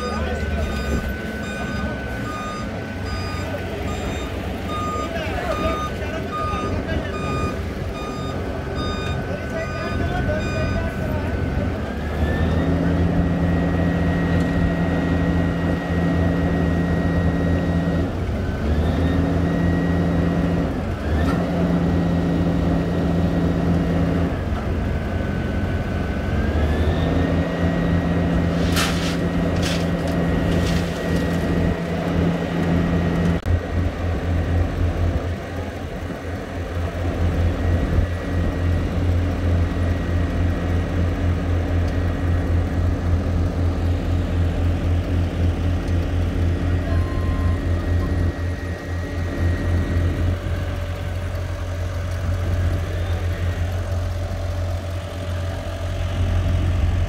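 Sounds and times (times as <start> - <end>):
diesel engines running: 0.0 - 57.0
asphalt tipping into hopper: 28.2 - 32.4.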